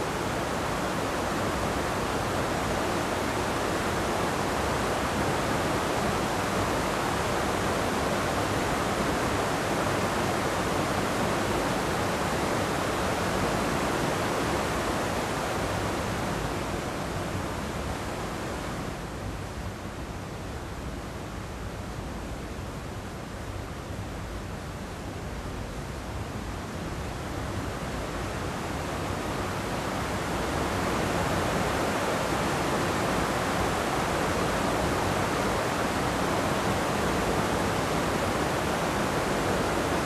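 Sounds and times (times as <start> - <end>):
waterfall rushing: 29.5 - 40.0.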